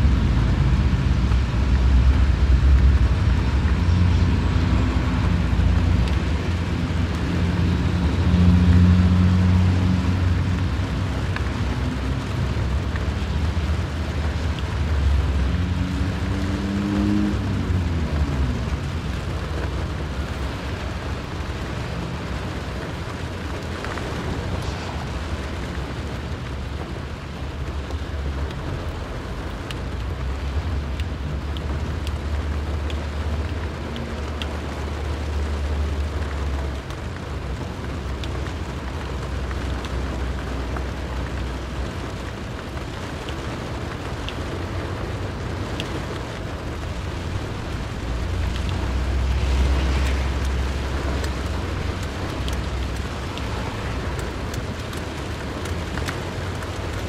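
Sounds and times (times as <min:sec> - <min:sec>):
passing vehicles engine rumble: 0:00.0 - 0:57.0
rain hiss: 0:00.0 - 0:57.0.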